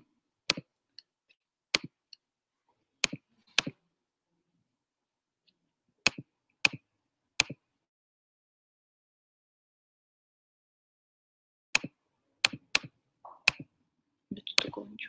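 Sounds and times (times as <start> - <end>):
computer mouse clicks: 3.0 - 3.8, 7.4 - 7.6, 11.8 - 13.7.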